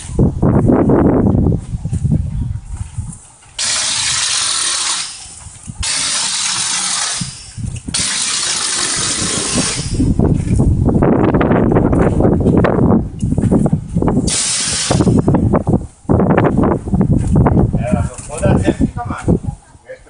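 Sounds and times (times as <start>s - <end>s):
air hiss: 3.6s - 10.1s, 14.3s - 15.3s.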